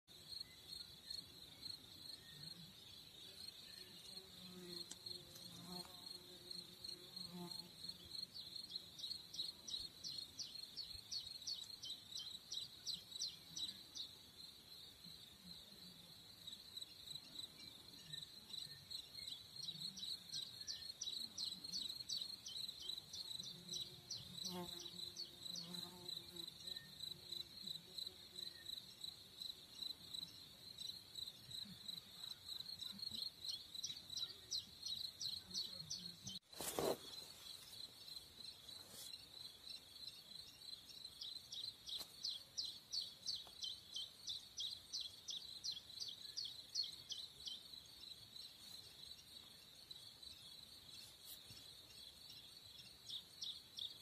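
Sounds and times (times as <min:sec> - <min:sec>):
insects chirping in a trill: 0:00.2 - 0:54.0.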